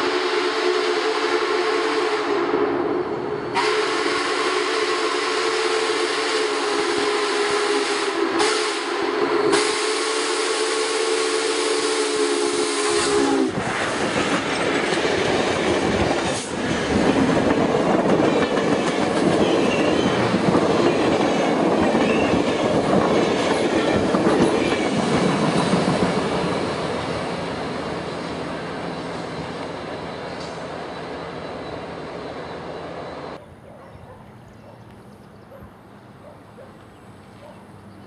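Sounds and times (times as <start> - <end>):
steam whistle blowing: 0.0 - 2.9, 3.5 - 13.8
steam train passing: 0.0 - 33.4
wheels on rail: 6.3 - 38.0.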